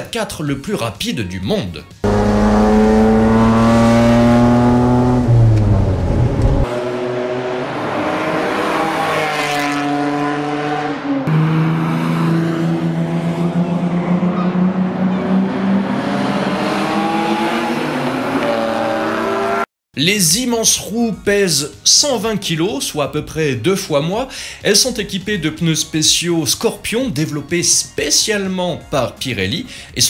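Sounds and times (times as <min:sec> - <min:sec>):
engine deep rumble: 0:02.0 - 0:06.7.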